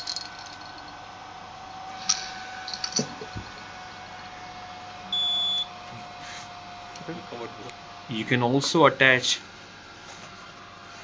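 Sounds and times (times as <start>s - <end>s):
respirator fan humming: 0.0s - 11.0s
high beep: 5.1s - 5.7s.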